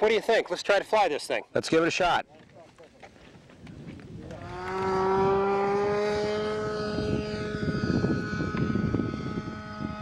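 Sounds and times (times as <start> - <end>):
model airplane engine whine: 3.6 - 10.0.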